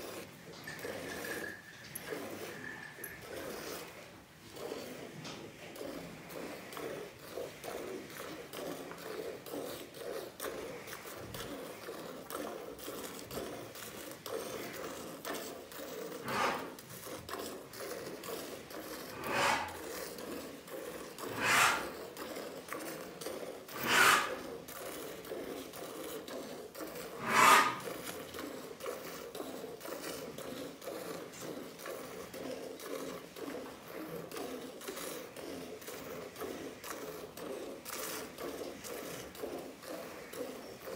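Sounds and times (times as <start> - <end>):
short hissing sounds: 16.2 - 16.8, 19.2 - 19.8, 21.3 - 22.0, 23.8 - 24.4, 27.2 - 27.9.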